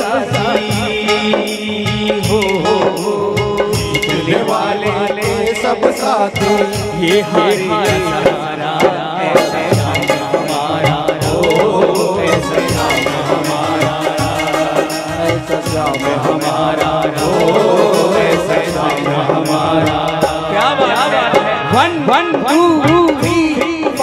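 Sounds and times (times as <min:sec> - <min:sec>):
devotional music over loudspeakers: 0:00.0 - 0:24.0
hand drum beat: 0:00.0 - 0:24.0
wavering melody line: 0:12.2 - 0:19.2.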